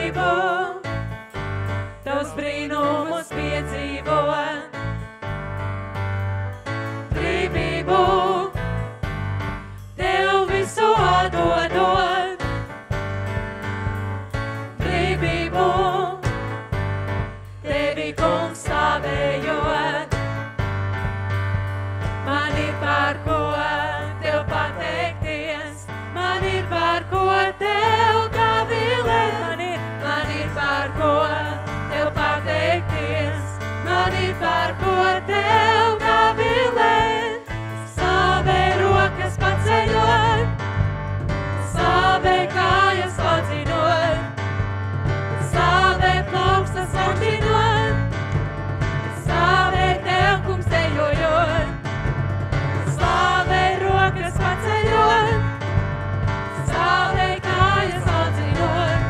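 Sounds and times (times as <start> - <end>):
voices singing together: 0.0 - 0.8, 2.1 - 4.7, 7.1 - 8.6, 10.0 - 12.4, 14.8 - 16.3, 17.6 - 20.2, 22.2 - 40.6, 41.7 - 44.4, 45.4 - 48.1, 49.1 - 51.8, 52.9 - 55.6, 56.6 - 59.0
drums: 0.0 - 59.0
keyboard: 0.0 - 59.0
low bass line: 37.5 - 59.0.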